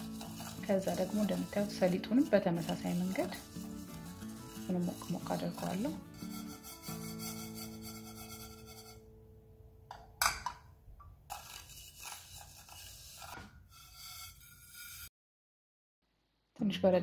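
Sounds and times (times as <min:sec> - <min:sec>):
seeds rustling in a frying pan: 0:00.0 - 0:07.7.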